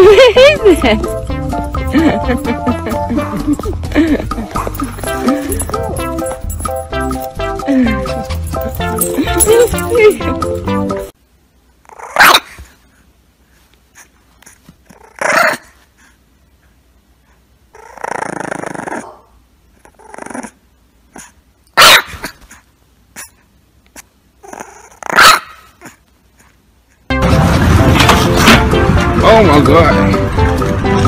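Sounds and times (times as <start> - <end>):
puppy growling: 11.9 - 12.4, 14.9 - 15.7, 17.7 - 21.4, 24.0 - 26.0
puppy yapping: 11.9 - 12.6, 14.9 - 15.8, 21.2 - 22.6, 24.4 - 26.0
puppy barking: 12.0 - 12.6, 15.2 - 15.8, 21.2 - 22.6, 24.7 - 26.0.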